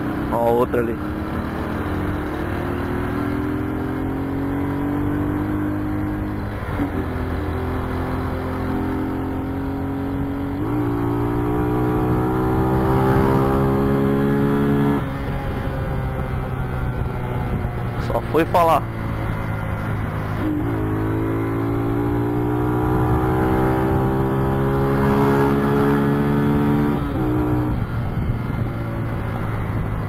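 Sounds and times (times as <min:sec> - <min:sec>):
motorcycle engine accelerating: 0:00.0 - 0:30.0.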